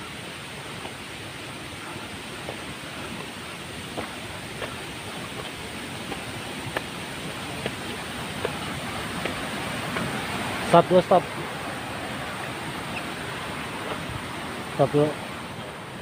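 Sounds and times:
river water rushing: 0.0 - 16.0
footsteps crunching on dry leaves: 2.3 - 10.6.

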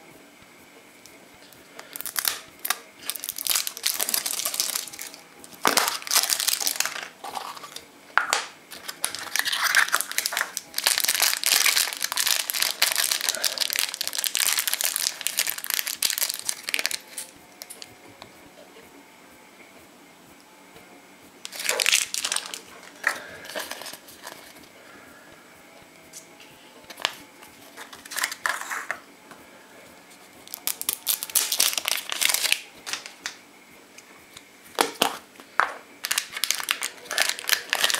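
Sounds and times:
plastic wrappers crinkling: 1.8 - 17.9, 21.5 - 24.7, 26.9 - 28.9, 30.4 - 33.4, 34.8 - 37.9.

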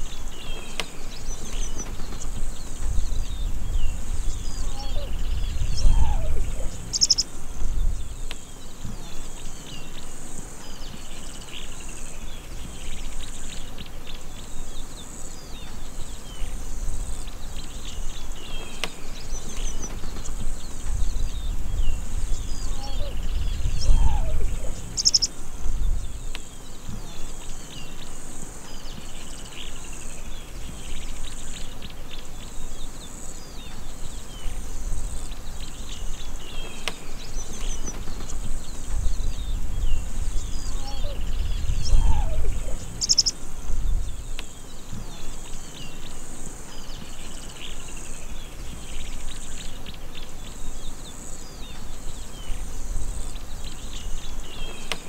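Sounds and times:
high insect buzz: 0.0 - 55.0
small birds chirping: 0.0 - 55.0.

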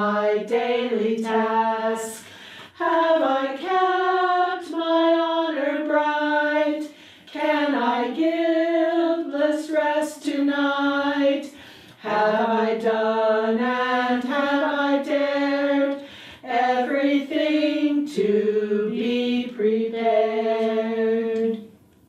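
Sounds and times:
women singing a cappella: 0.0 - 21.8
singers breathing: 2.1 - 2.8, 6.8 - 7.4, 11.4 - 12.0, 15.9 - 16.5.

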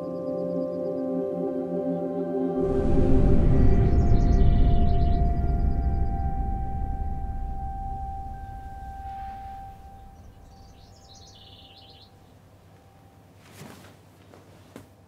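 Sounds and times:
low musical tone and rumble: 2.6 - 11.8
bird chirping: 3.4 - 12.5
soft rustle: 13.3 - 15.0.

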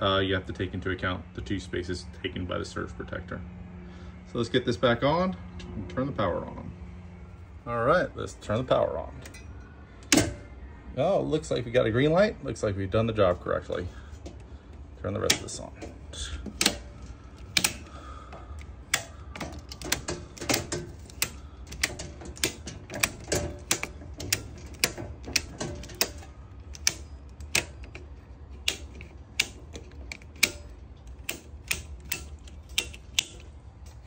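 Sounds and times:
circuit breakers clicking: 9.2 - 10.5, 14.2 - 34.0.

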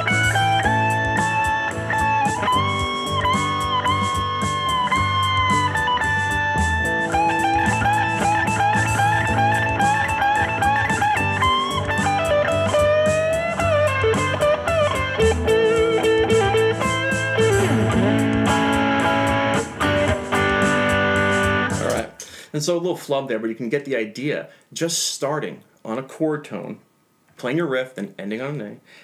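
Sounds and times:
electric guitar blues-rock lead: 0.0 - 22.1
bass: 0.0 - 22.2
steady drum beat: 0.0 - 22.3.

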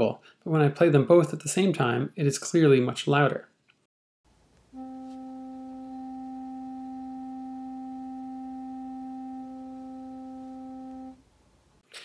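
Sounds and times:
steady sine tone: 4.8 - 11.2.

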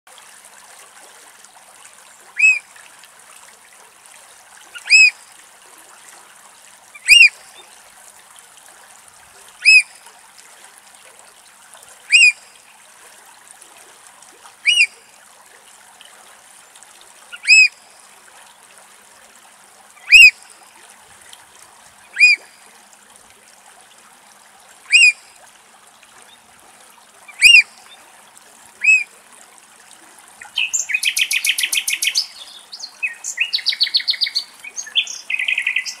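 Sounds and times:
bird piping alarm calls: 2.4 - 2.6, 4.8 - 5.2, 7.0 - 7.4, 9.6 - 9.9, 12.1 - 12.5, 14.6 - 14.9, 17.3 - 17.7, 20.0 - 20.3, 22.1 - 22.4, 24.9 - 25.2, 27.3 - 27.7, 28.8 - 29.0, 30.4 - 36.0.

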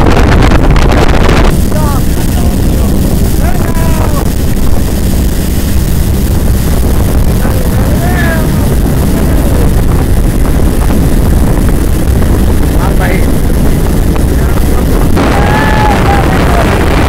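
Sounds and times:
boat engine rumbling: 0.0 - 17.0
water rushing past hull: 0.0 - 17.0
wind on microphone: 0.0 - 17.0.

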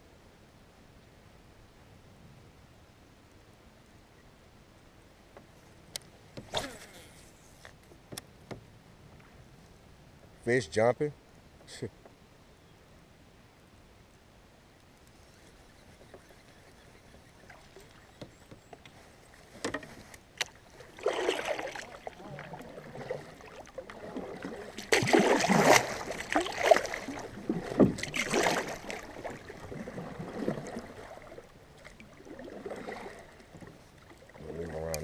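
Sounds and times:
paddle strokes splashing: 15.1 - 35.0.

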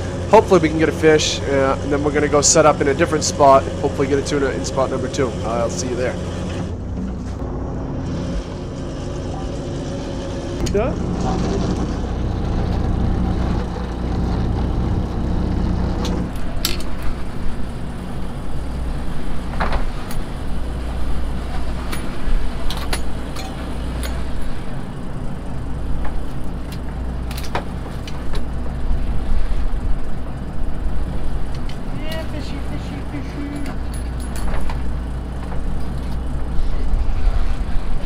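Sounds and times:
boat engine and hydraulic hauler: 0.0 - 38.0
gear clicking and knocking: 25.6 - 32.5.

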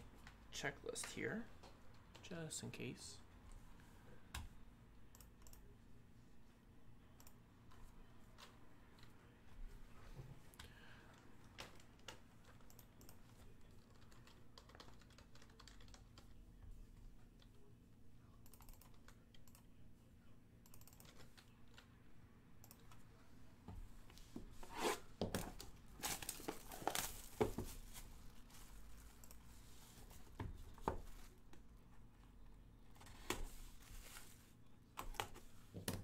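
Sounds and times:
keyboard typing: 11.6 - 16.4, 18.4 - 19.7, 20.6 - 21.9.

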